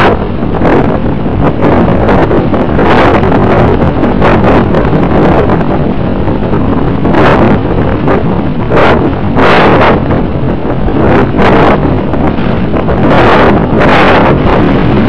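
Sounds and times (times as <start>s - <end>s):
wind buffeting gusts: 0.0s - 15.0s
wind rushing over microphone: 0.0s - 15.0s.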